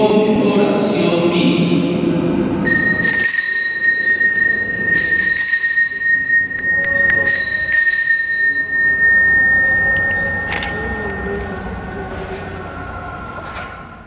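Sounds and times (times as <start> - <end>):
altar bell ringing: 2.6 - 13.3.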